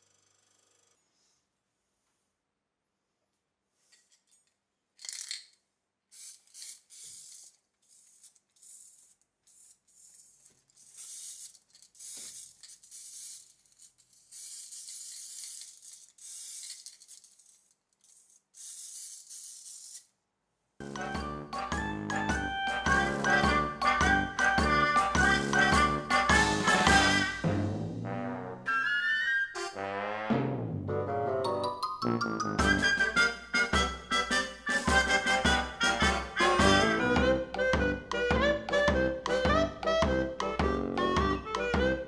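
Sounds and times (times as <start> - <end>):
spray can hissing: 6.1 - 20.1
jingling music: 20.8 - 27.4, 31.4 - 42.0.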